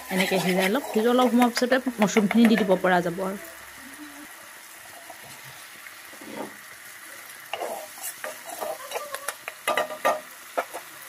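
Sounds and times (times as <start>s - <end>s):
spatula scraping a pan: 0.0s - 1.6s, 4.9s - 6.6s, 7.5s - 11.0s
faint sizzle: 0.0s - 11.0s.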